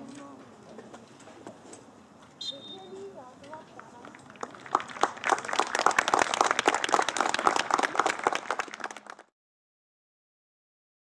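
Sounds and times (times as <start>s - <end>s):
crowd clapping: 3.8s - 9.3s.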